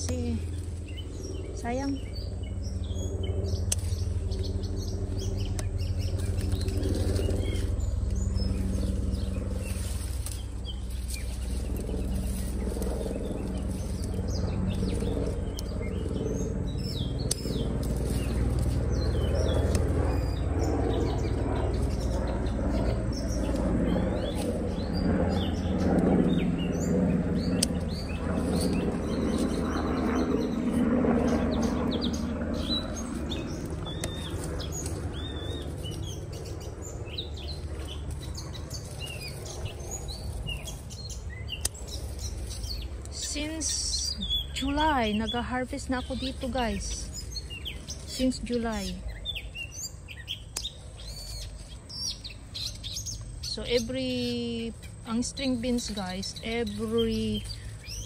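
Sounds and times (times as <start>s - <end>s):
birds chirping: 0.0s - 58.0s
steady low hum: 0.0s - 58.0s
leaves rustling: 3.5s - 20.4s, 21.0s - 49.8s, 51.0s - 58.0s
scissors snipping: 17.2s - 18.7s, 27.5s - 28.7s.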